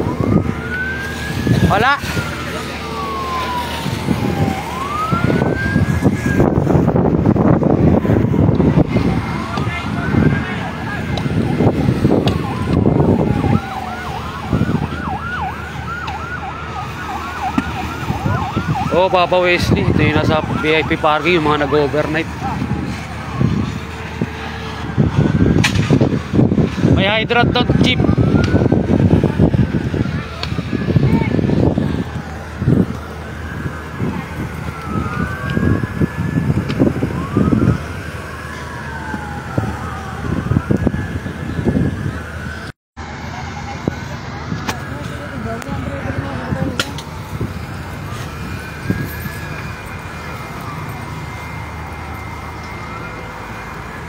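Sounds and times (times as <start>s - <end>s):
emergency vehicle siren: 0.0s - 54.0s
low gusty rumble: 0.0s - 54.0s.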